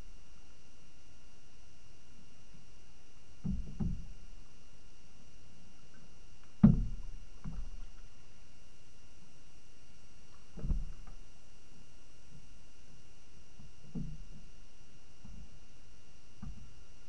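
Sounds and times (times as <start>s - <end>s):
paddle thuds on inflatable canoe: 3.4s - 4.1s, 6.6s - 7.8s, 10.5s - 11.2s.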